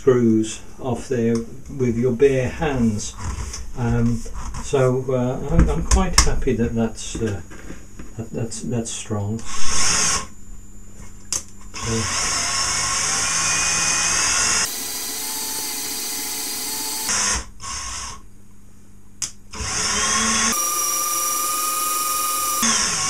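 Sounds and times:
small power tool whirring: 9.4s - 10.3s, 11.7s - 18.2s, 19.5s - 23.0s.

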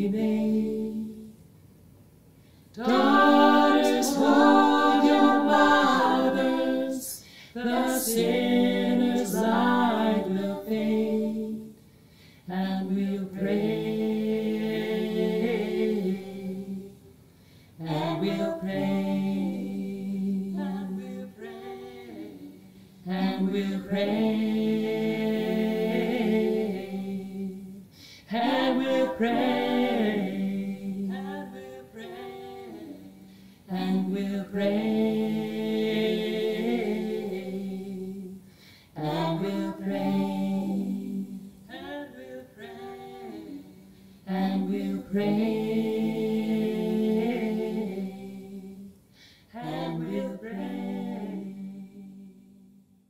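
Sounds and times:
voices singing long notes: 2.8s - 11.7s, 17.8s - 38.4s.

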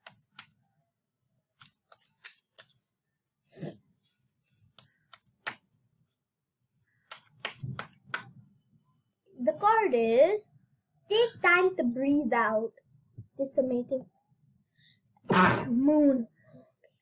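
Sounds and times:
cards being shuffled: 0.0s - 0.8s, 1.5s - 2.9s, 4.0s - 5.8s.

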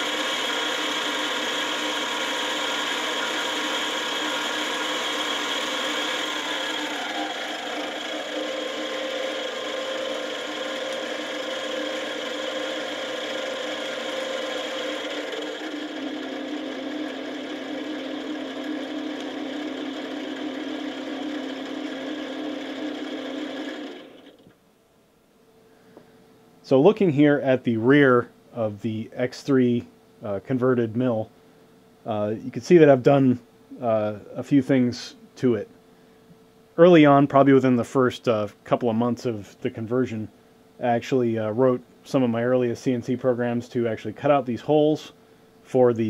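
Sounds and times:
milling machine motor whine: 0.0s - 24.5s.

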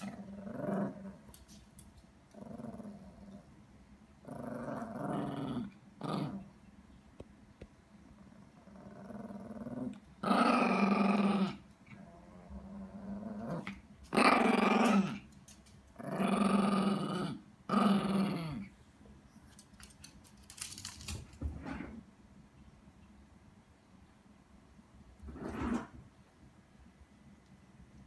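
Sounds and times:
dog growl-barking: 0.0s - 1.2s, 4.2s - 6.5s, 8.2s - 15.2s, 16.0s - 18.7s
dog grumbling: 0.0s - 1.2s, 2.4s - 3.4s, 4.2s - 6.4s, 8.2s - 15.2s, 16.0s - 18.7s.

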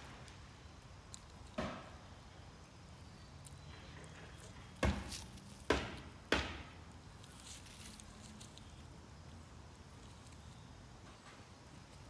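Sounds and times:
faint leaf rustle: 0.0s - 5.8s, 6.8s - 12.0s
dry leaves crunching: 3.5s - 5.8s, 7.0s - 10.7s.

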